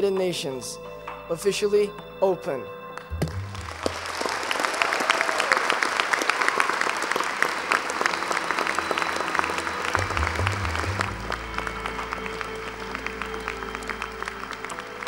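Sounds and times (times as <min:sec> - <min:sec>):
audience applauding: 0:03.0 - 0:15.0.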